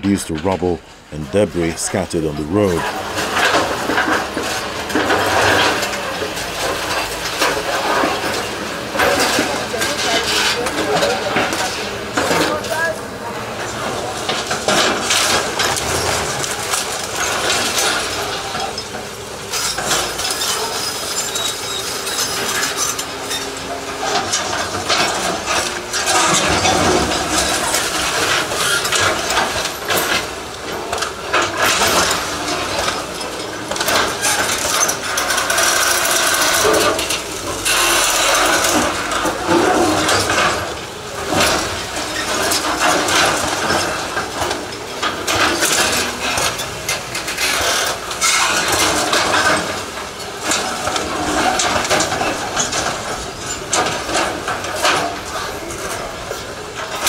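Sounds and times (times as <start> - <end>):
excavator bucket crunching masonry: 0.0 - 57.0
metallic clanking of falling debris: 3.0 - 57.0
excavator engine running: 13.0 - 57.0.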